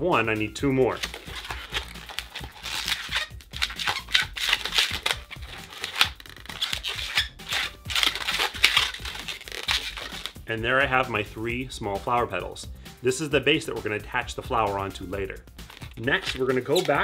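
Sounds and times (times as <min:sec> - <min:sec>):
balloon squeaking and rubbing: 0:00.7 - 0:10.5, 0:15.6 - 0:17.0.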